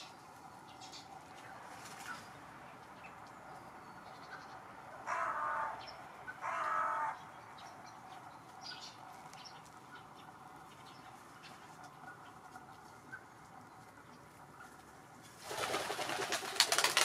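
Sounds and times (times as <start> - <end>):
crow cawing: 4.9 - 7.2.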